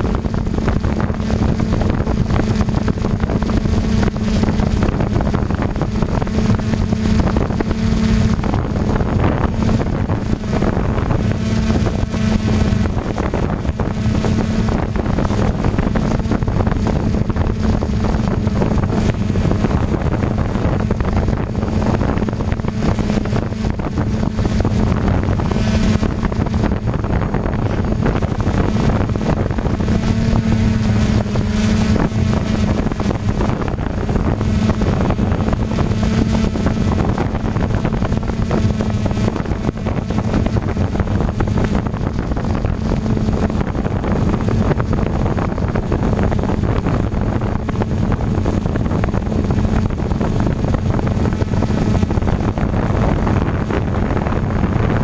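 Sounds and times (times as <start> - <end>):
drone motors humming: 0.0 - 55.0
wind on microphone: 0.0 - 55.0.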